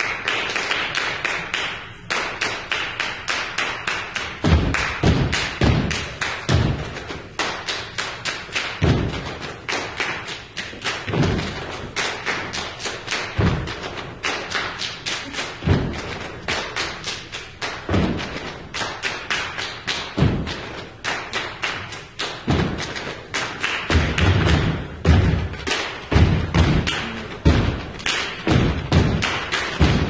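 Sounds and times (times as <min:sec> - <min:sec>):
deep drum hits: 0:23.9 - 0:30.0.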